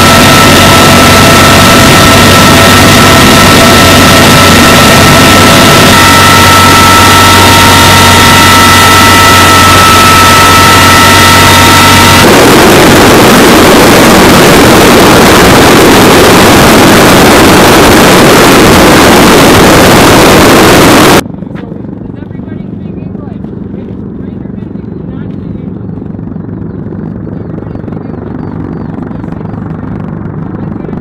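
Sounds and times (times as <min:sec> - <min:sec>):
helicopter rotor wash roar: 0:00.0 - 0:21.2
high whining tones: 0:00.0 - 0:21.2.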